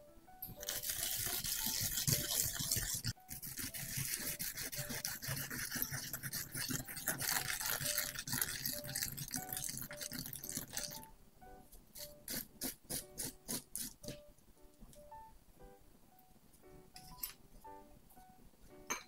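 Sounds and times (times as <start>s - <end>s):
faint music: 0.0s - 19.0s
cucumber scraping on grater: 0.6s - 9.3s, 12.0s - 14.1s.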